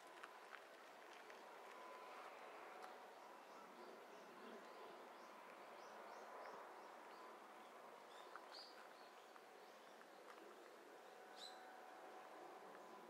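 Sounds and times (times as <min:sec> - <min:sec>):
faint steady high hum: 0:00.0 - 0:13.0.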